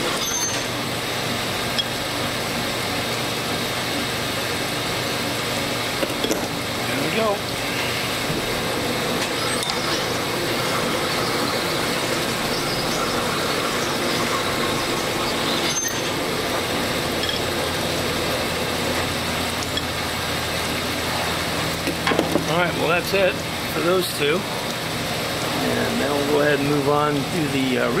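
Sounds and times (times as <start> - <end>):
machine spindle running: 0.0 - 21.8.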